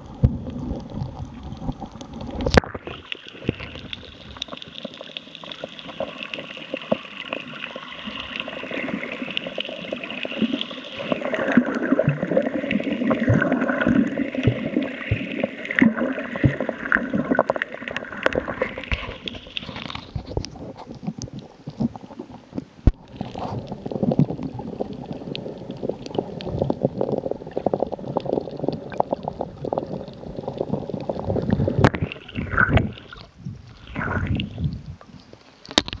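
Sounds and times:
small underwater clicks and knocks: 0.0 - 36.0
water sloshing and bubbling: 0.0 - 36.0.

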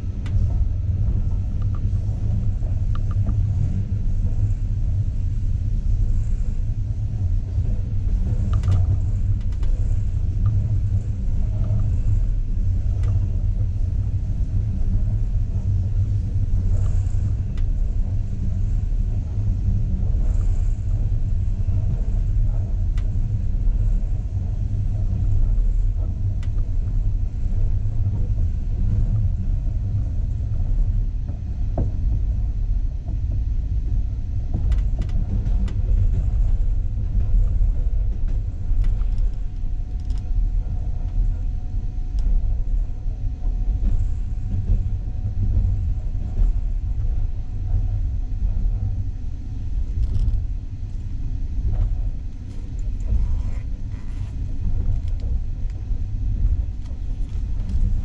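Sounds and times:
train rumbling inside carriage: 0.0 - 58.0
faint clicks and rattles: 7.5 - 13.8, 34.5 - 42.8, 43.5 - 58.0.

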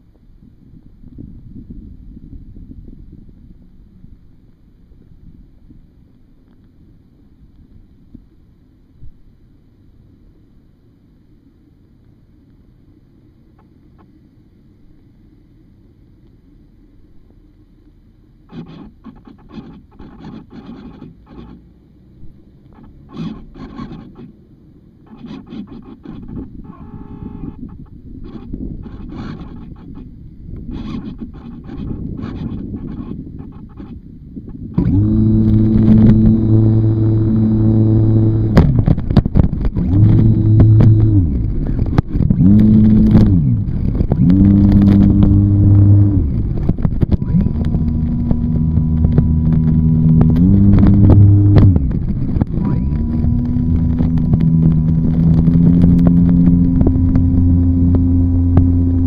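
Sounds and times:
model airplane motor revving: 18.5 - 21.7, 22.7 - 24.4, 25.0 - 59.0
scratching on microphone: 18.5 - 21.7, 22.7 - 24.4, 25.0 - 59.0
short buzzing tone: 25.1 - 30.1.

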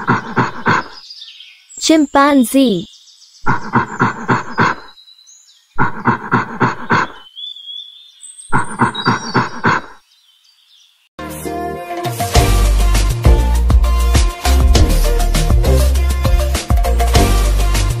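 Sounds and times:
faint bird chirps: 0.5 - 11.1
music: 11.2 - 18.0.

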